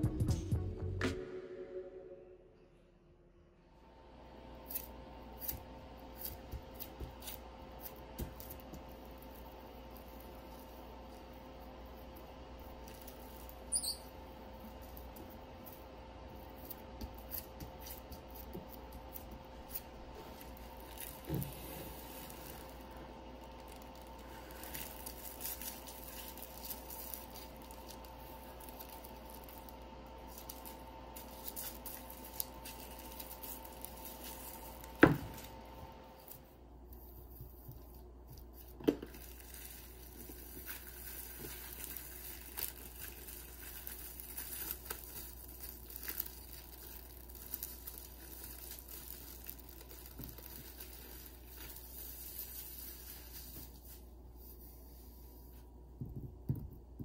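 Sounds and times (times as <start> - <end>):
faint steady hum: 0.0 - 57.0
cling wrap crinkling: 4.6 - 54.9.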